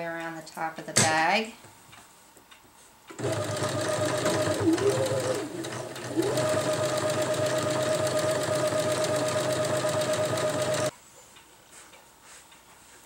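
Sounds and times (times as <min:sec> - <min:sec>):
electric sewing machine stitching: 0:03.2 - 0:10.9.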